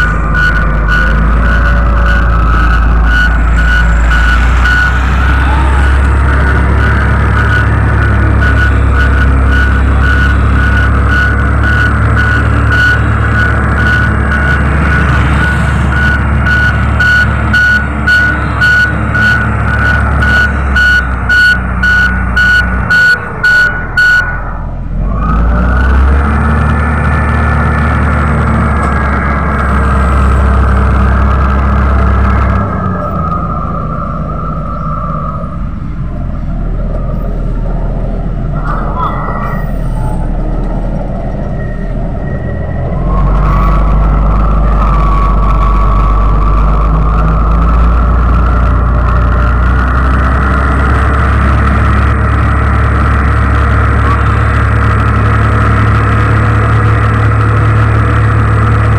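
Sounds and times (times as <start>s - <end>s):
back-up alarm beeping: 0.0s - 24.5s
diesel engine running: 0.0s - 58.9s
steady high whine: 0.0s - 58.9s.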